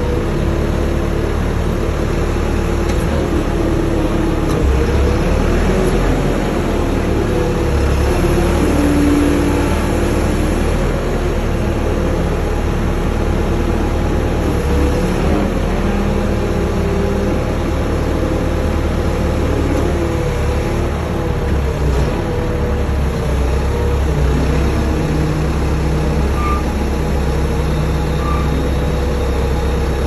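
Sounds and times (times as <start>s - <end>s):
engine running under load: 0.0s - 30.0s
hydraulic whine: 24.8s - 30.0s.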